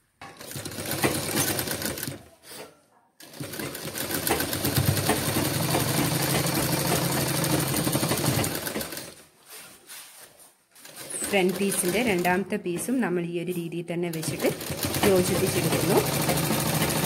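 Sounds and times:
sewing machine stitching: 0.3 - 2.6, 3.2 - 9.2, 10.8 - 12.4, 14.1 - 17.0.

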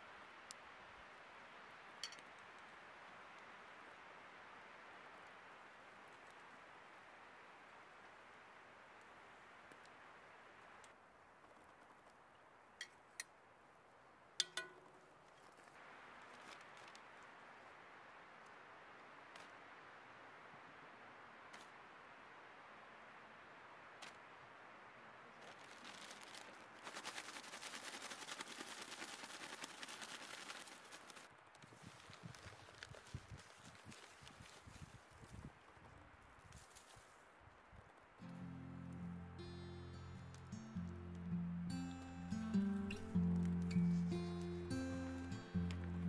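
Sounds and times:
spoon clinking against pot: 14.4 - 14.8
paper bag shaken rustling: 25.4 - 33.9.

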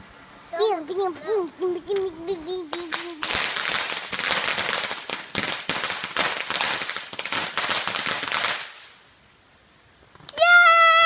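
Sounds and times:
firecrackers cracking and popping: 2.7 - 9.0.

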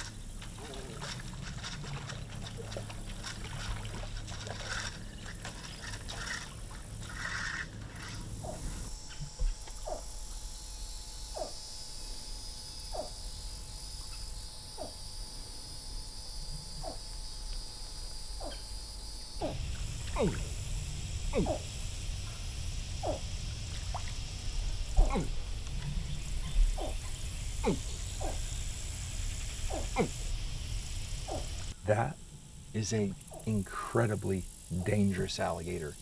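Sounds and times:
fishing line rustling: 0.0 - 8.8.

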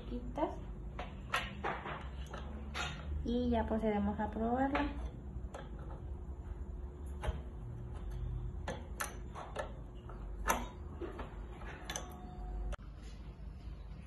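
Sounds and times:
wrench clicking on metal nuts: 7.1 - 10.8.

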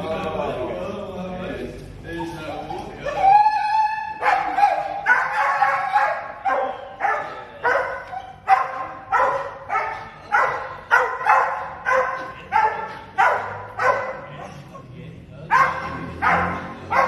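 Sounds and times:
dog barking: 4.2 - 14.6, 15.5 - 17.0.

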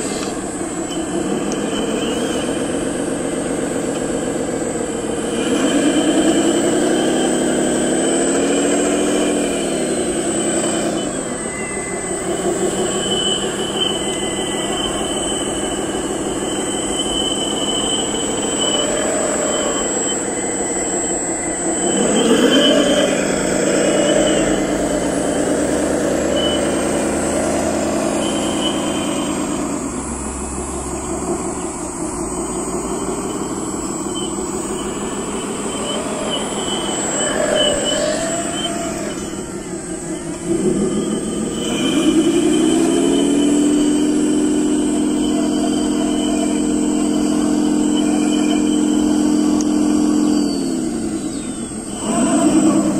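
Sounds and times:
model loader motor whining: 0.0 - 52.9.

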